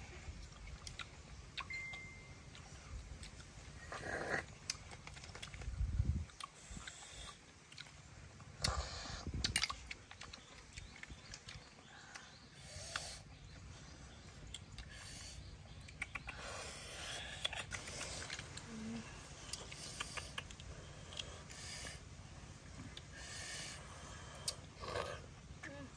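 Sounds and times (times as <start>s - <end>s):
chewing: 0.3s - 25.5s.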